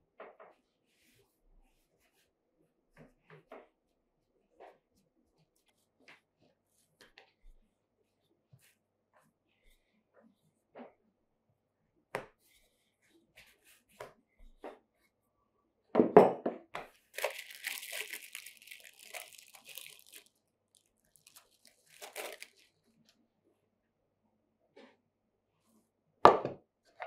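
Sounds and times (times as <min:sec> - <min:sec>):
plastic wrapping crinkling and tearing: 0:17.2 - 0:22.9.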